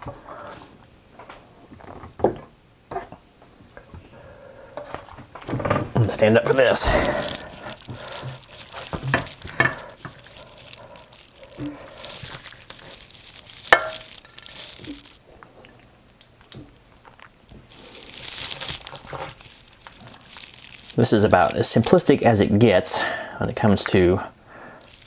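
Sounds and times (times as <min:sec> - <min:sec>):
spoon scraping and squelching food: 0:06.2 - 0:21.5.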